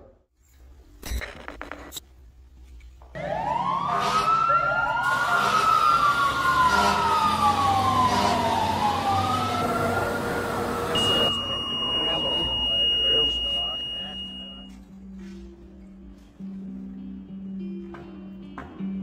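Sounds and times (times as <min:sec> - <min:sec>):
wailing siren: 0:03.2 - 0:13.8.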